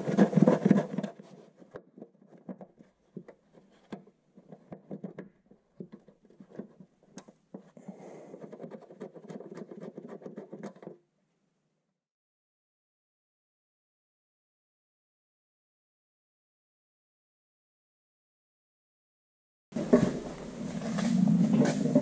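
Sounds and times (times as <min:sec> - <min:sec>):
loud scratchy scraping: 0:00.0 - 0:01.7, 0:19.8 - 0:22.0
steady rubbing: 0:00.0 - 0:10.9, 0:19.8 - 0:22.0
gloved hands tapping and scratching: 0:00.0 - 0:11.0.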